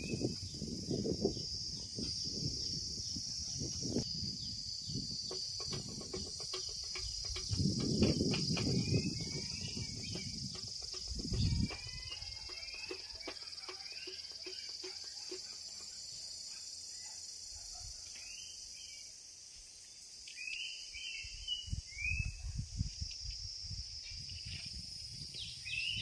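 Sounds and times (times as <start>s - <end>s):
insects droning: 0.0s - 26.0s
bird chirps: 4.3s - 17.2s.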